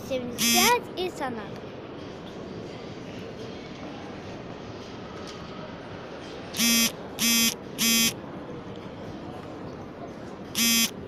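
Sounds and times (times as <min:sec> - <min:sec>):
hall hubbub: 0:00.0 - 0:11.0
harsh electric buzzer blasts: 0:00.4 - 0:00.7, 0:06.6 - 0:08.2, 0:10.6 - 0:11.0.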